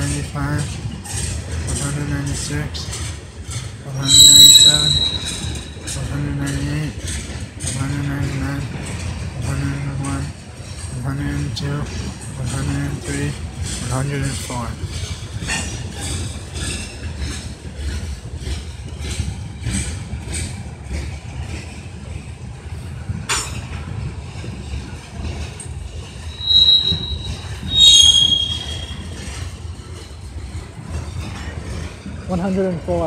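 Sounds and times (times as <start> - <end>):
freight train rumbling: 0.0 - 33.0
wheels clacking on rails: 0.0 - 33.0
high wheel squeals: 3.9 - 6.3, 26.2 - 29.6
train car clank: 11.9 - 21.8.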